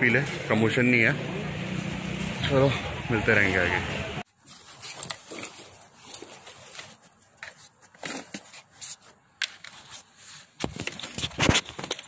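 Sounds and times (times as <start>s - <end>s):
cloth rustling: 4.2s - 12.0s.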